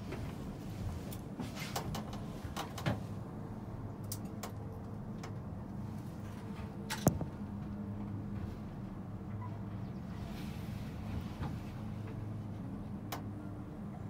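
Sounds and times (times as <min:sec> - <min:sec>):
gondola cabin low hum: 0:00.0 - 0:14.0
light clicks and creaks: 0:01.0 - 0:03.1, 0:04.0 - 0:08.5.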